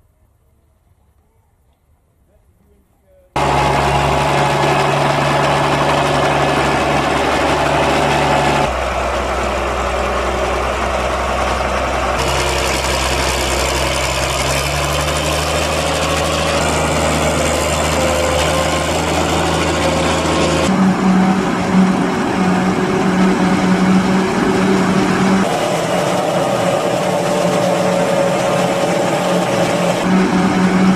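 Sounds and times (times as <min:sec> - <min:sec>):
pulsing hum: 0:03.4 - 0:30.9
tractor diesel engine under load: 0:03.4 - 0:30.9.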